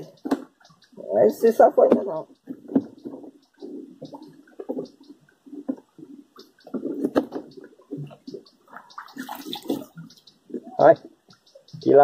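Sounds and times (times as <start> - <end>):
fish splashing: 5.6 - 10.4.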